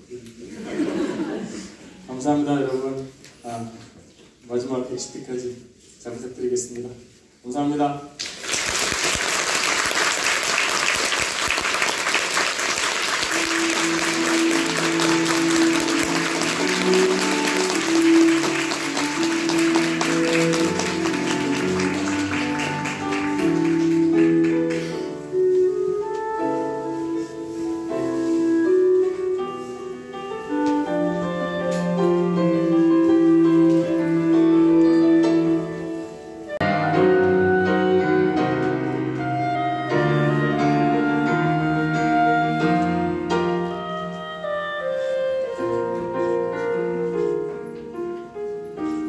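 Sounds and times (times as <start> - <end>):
piano music: 4.6 - 5.7, 9.4 - 49.0
audience applauding: 8.2 - 25.2.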